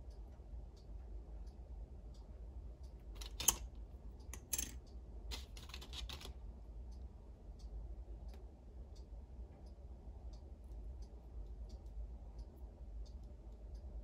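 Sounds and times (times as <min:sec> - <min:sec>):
steady low hum: 0:00.0 - 0:14.0
plastic toy pieces clicking: 0:03.2 - 0:03.7, 0:04.3 - 0:06.3.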